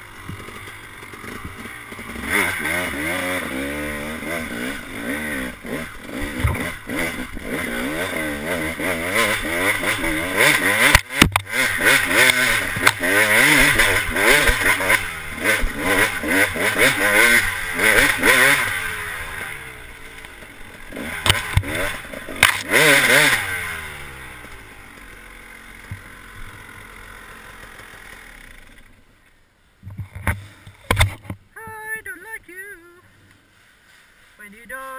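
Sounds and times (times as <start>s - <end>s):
dirt bike engine revving: 0.0s - 29.0s
bike knocking and rattling: 0.1s - 3.1s, 5.0s - 8.0s, 29.8s - 31.4s.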